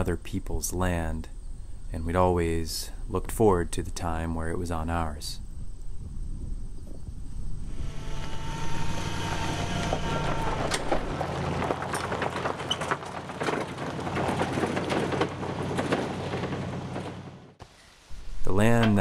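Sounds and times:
trailer clattering: 7.7s - 17.6s
van engine hum: 7.7s - 17.6s
tyres crunching gravel: 9.8s - 17.6s.

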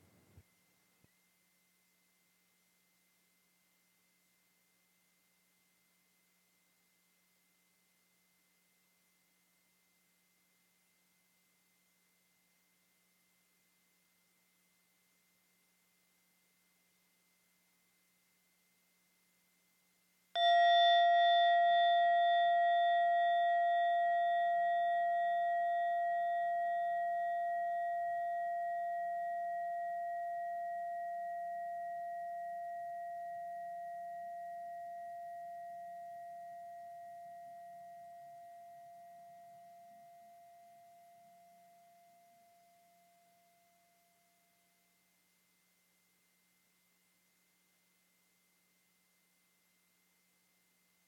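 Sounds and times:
singing bowl ringing: 20.4s - 44.8s.

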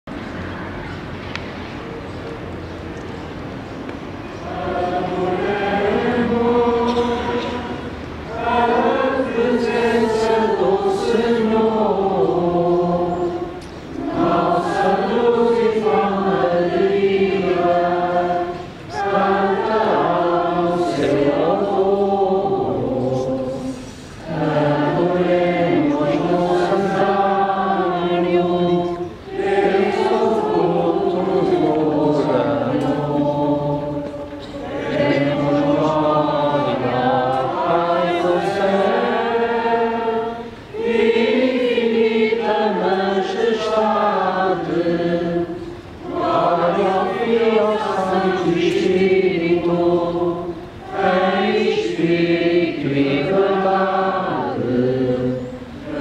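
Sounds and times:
choir singing a hymn: 4.0s - 56.0s
singers breathing: 23.6s - 24.3s.

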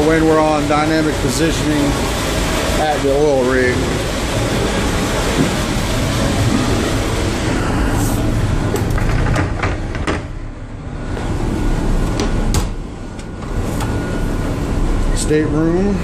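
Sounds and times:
boat engines humming: 0.0s - 9.1s, 9.8s - 16.0s
footsteps: 4.5s - 7.0s
door clicks and knocks: 8.8s - 10.4s.

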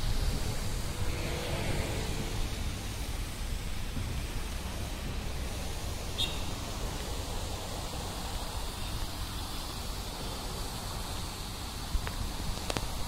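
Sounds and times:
wind on microphone: 0.0s - 9.1s.

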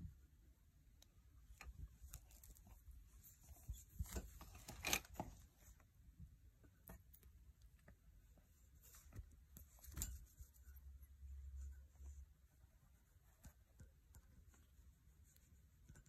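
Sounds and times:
rustling and soft clicks on wire rack: 1.0s - 5.9s, 6.6s - 11.8s.

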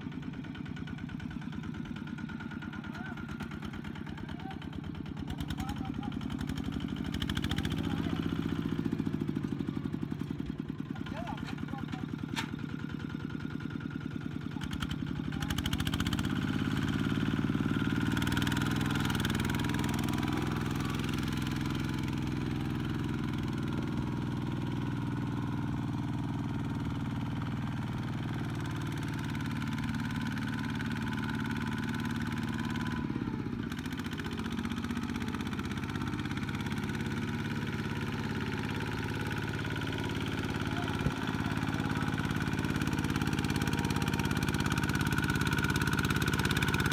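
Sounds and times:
diesel engine chugging: 0.0s - 46.9s.

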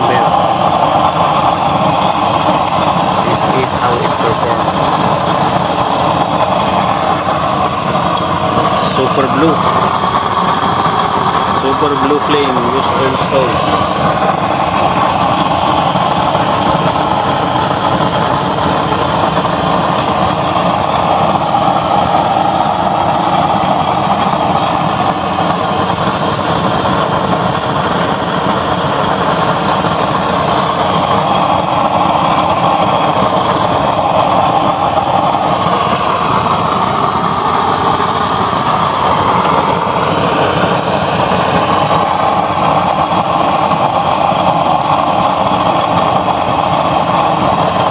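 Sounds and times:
oil burner roaring: 0.0s - 47.9s.

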